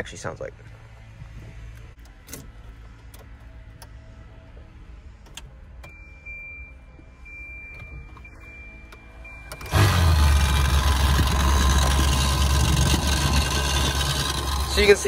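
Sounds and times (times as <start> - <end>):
heater blower motor humming: 9.7 - 15.0.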